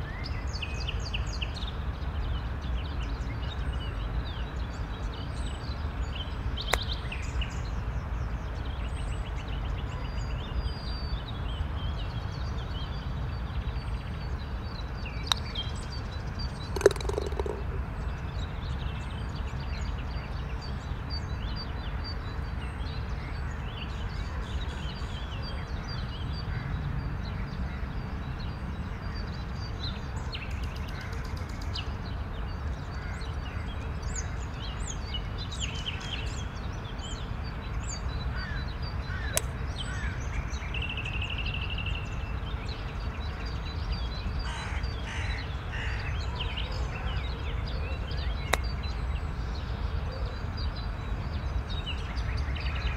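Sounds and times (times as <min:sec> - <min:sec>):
birds chirping: 0:13.9 - 0:20.0.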